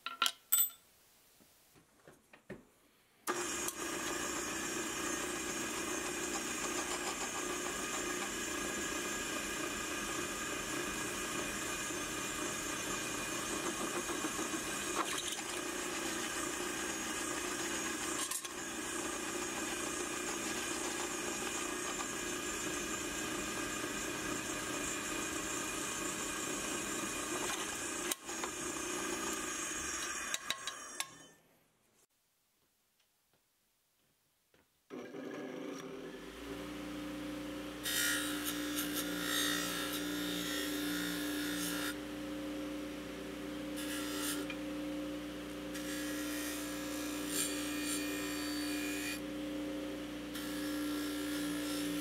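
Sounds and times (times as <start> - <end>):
drill press drilling steel: 3.3 - 31.4.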